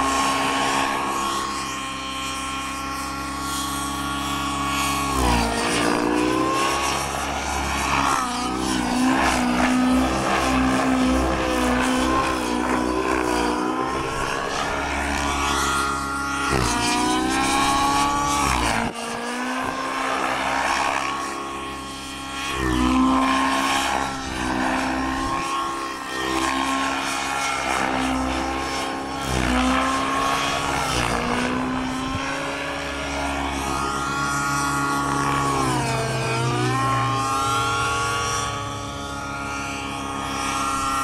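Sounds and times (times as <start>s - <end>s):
model helicopter rotor whine: 0.0s - 41.0s.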